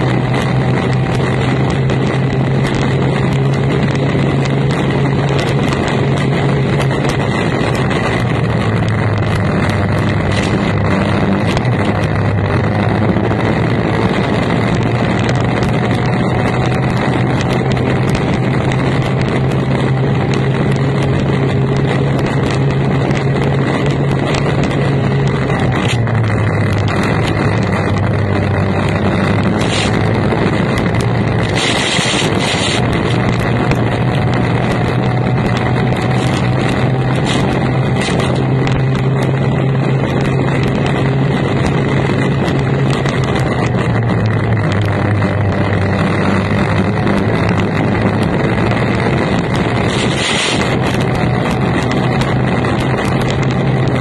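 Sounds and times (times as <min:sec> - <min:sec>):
outboard racing engine: 0:00.0 - 0:54.0
wind and water rush: 0:29.5 - 0:33.4, 0:49.4 - 0:51.0.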